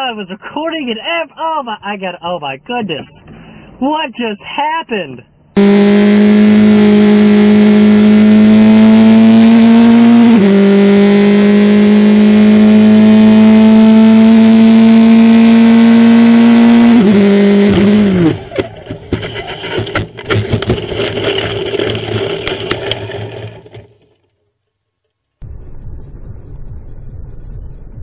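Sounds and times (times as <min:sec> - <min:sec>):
race car engine accelerating: 0:05.6 - 0:23.5
knocks and clattering: 0:18.3 - 0:24.4.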